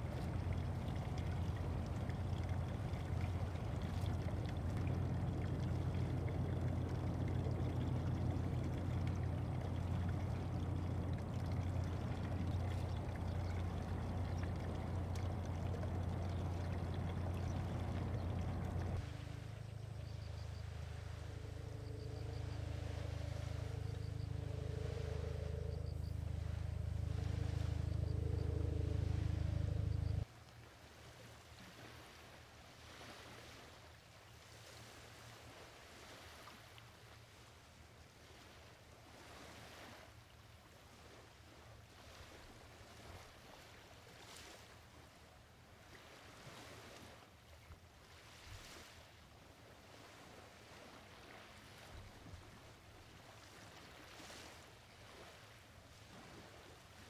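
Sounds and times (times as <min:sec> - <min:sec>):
boat engine droning: 0:00.0 - 0:30.3
faint lapping surf: 0:00.0 - 0:57.0
wind: 0:00.0 - 0:57.0.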